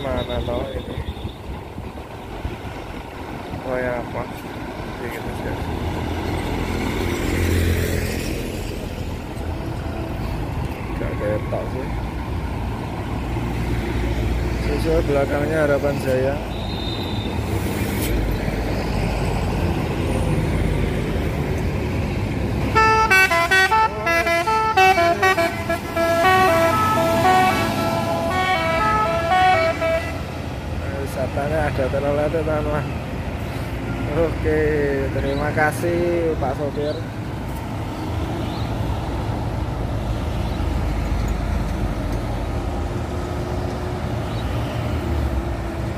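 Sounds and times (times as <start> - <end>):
bus engine rumbling: 0.0 - 45.9
road traffic: 0.0 - 45.9
musical horn melody: 22.7 - 30.4.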